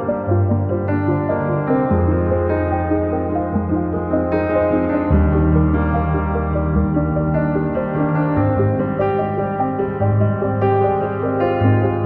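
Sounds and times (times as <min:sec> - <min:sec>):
slow ambient instrumental music: 0:00.0 - 0:12.0.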